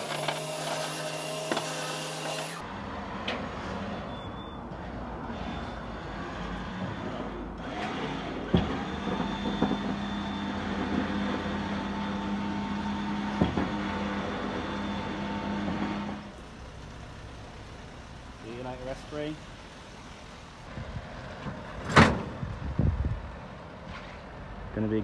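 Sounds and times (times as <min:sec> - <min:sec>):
truck loading machinery humming: 0:00.0 - 0:18.4.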